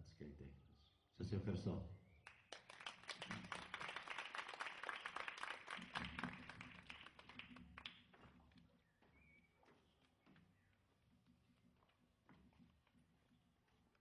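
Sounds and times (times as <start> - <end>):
audience applause: 2.3 - 8.1.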